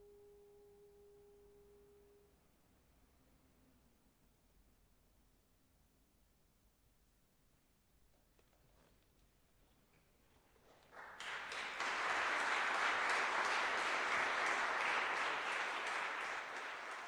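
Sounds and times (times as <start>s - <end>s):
audience applauding: 10.6s - 17.0s.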